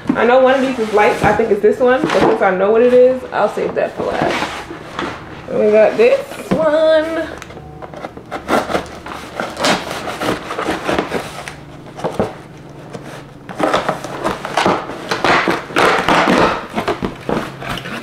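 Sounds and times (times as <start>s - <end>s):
packing tape being slit: 7.9s - 18.0s
cardboard ripping and tearing: 8.0s - 18.0s.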